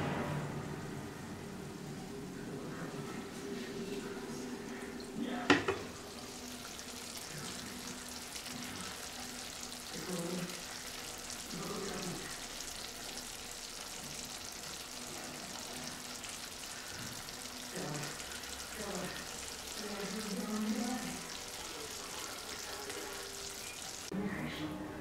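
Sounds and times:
food sizzling in a frying pan: 4.7s - 24.1s.

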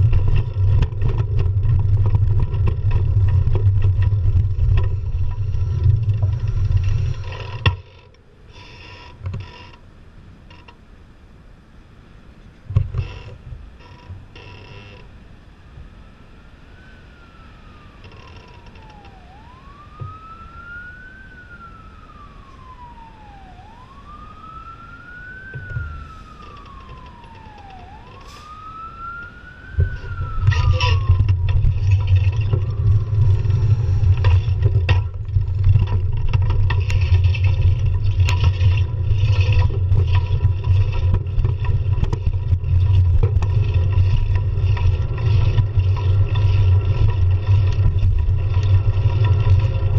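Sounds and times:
emergency siren wailing: 0.0s - 8.1s, 15.3s - 49.9s
bicycle rattles and clicks: 0.0s - 9.8s, 29.8s - 49.9s
traffic noise: 0.0s - 49.9s
wind rumble on microphone: 0.0s - 49.9s.

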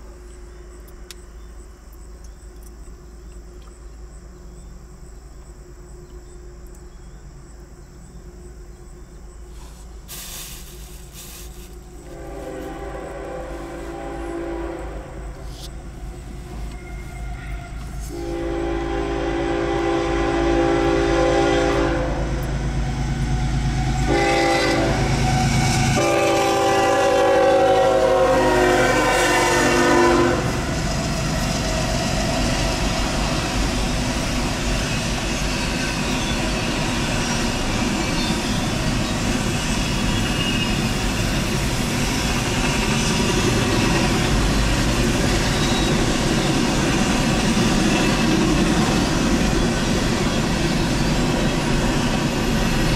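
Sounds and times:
locomotive horn blasts: 12.1s - 15.5s, 16.6s - 22.4s, 23.7s - 30.6s
train cars rolling over rails: 30.5s - 52.9s.

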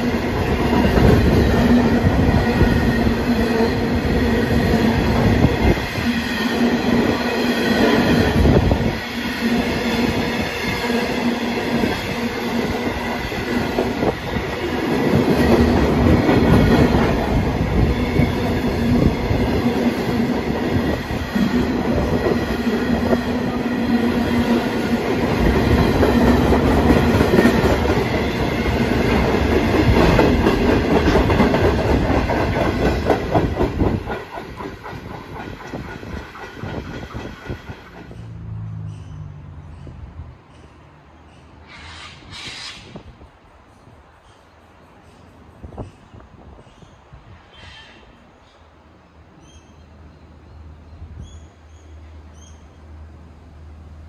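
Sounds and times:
train wheels clattering on rails: 0.0s - 39.1s.

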